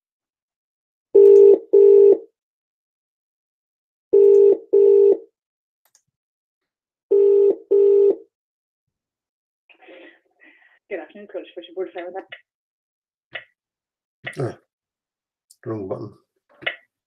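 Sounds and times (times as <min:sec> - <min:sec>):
telephone ringing tone: 0:01.2 - 0:02.2, 0:04.1 - 0:05.2, 0:07.1 - 0:08.2.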